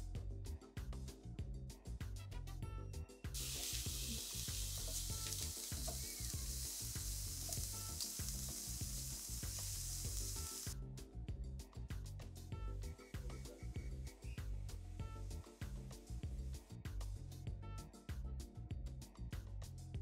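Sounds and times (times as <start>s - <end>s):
background music with steady beat: 0.0s - 20.0s
food sizzling in a frying pan: 3.4s - 10.8s.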